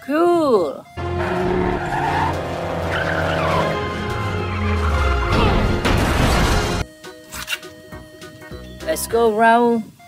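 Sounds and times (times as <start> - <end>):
background music: 0.0 - 10.0
race car engines running: 1.0 - 4.4
tyres skidding: 1.0 - 5.8.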